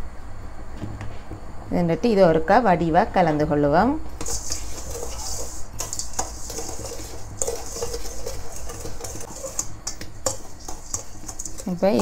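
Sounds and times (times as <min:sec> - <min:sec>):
utensil clinking against bowl: 0:04.2 - 0:12.0
utensil stirring sugar in steel bowl: 0:04.2 - 0:12.0.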